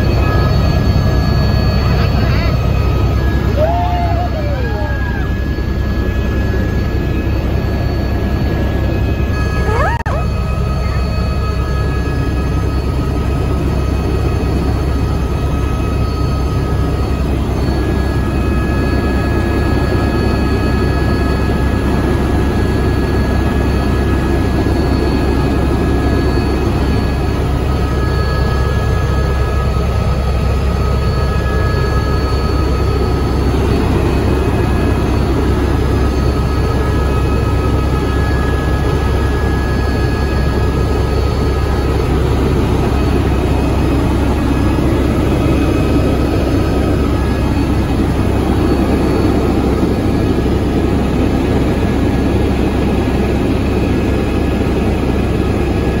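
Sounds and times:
helicopter engine and rotor rumble: 0.0 - 56.0
high whine: 0.0 - 56.0.

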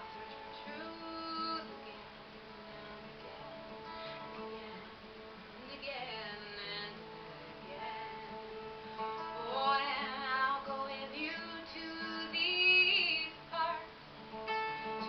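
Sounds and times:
strummed acoustic guitar: 0.0 - 15.0
woman singing: 0.2 - 2.1, 4.2 - 5.0, 5.6 - 8.4, 9.0 - 14.0.

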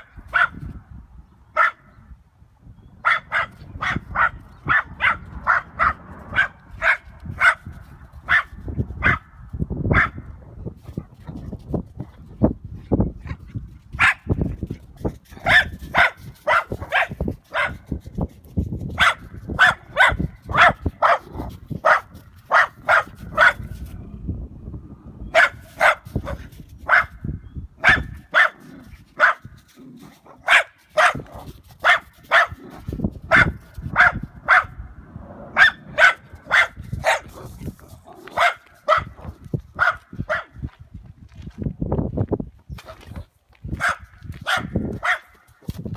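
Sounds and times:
small dog barking: 0.0 - 0.6, 1.6 - 1.9, 3.0 - 9.3, 9.9 - 10.2, 14.0 - 14.3, 15.4 - 17.9, 19.0 - 23.7, 25.3 - 27.2, 27.8 - 29.5, 30.3 - 34.8, 35.5 - 37.5, 38.1 - 40.6, 43.8 - 45.5.

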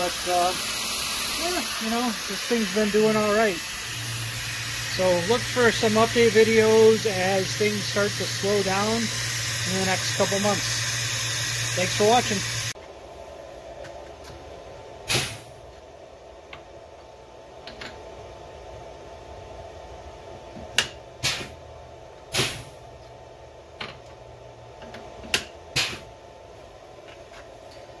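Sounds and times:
pneumatic drawbar air blasts: 0.0 - 12.8, 15.0 - 15.6, 21.2 - 21.6, 22.3 - 22.8, 25.7 - 26.1
steady background hum: 0.0 - 28.0.

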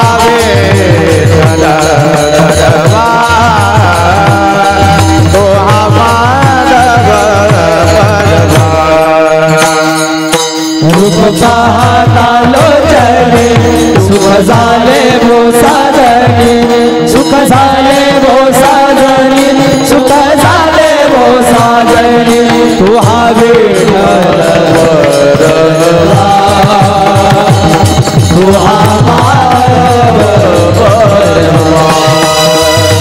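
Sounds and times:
hand cymbals struck: 0.0 - 33.0
hand drum: 0.0 - 33.0
voices singing a chant: 10.8 - 33.0.

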